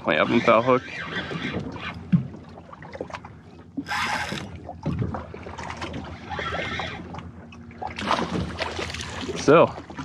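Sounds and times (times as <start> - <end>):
water against boat hull: 0.0 - 10.0
fishing reel cranking: 3.8 - 4.5.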